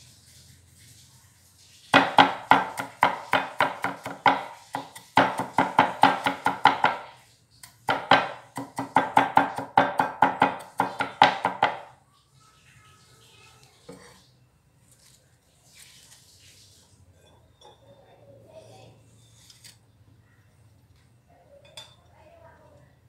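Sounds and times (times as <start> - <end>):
knife chopping on wooden block: 2.0 - 11.9.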